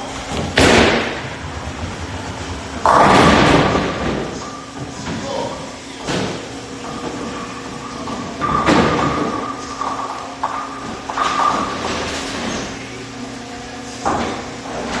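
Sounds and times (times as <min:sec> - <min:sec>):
bowling pins crashing: 0:00.2 - 0:05.4, 0:06.0 - 0:12.8.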